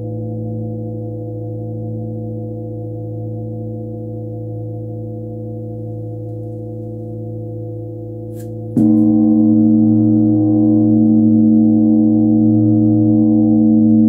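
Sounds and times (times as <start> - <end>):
large flat bell ringing: 5.4 - 14.0
mallet striking bell: 8.3 - 14.0.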